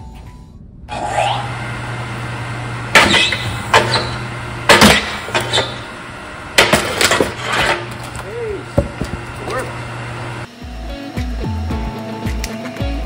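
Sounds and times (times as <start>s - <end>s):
log splitter motor humming: 0.9s - 11.1s
ram knocking and cracking log: 6.6s - 9.3s
heavy knocks of log falling: 8.8s - 9.3s.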